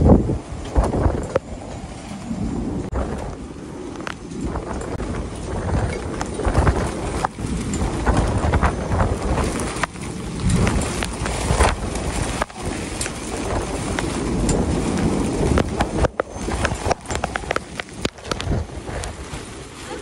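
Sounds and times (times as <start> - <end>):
storm wind buffeting microphone: 0.0 - 20.0
sharp snaps and rattles: 4.0 - 19.2.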